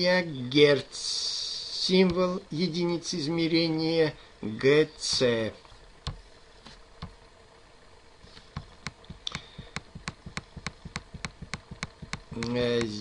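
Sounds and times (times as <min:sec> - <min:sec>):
mouse scroll wheel clicking: 0:08.6 - 0:13.0.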